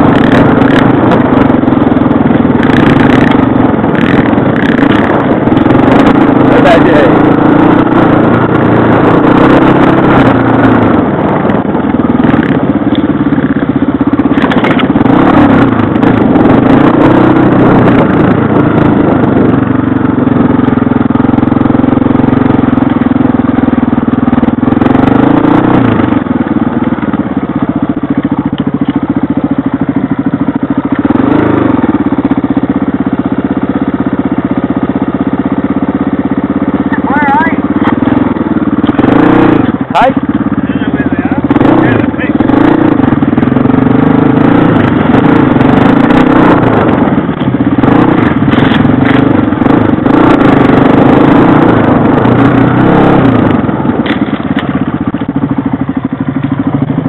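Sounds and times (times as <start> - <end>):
dirt bike engine revving: 0.0 - 57.0
clicks and scrapes: 48.5 - 49.3.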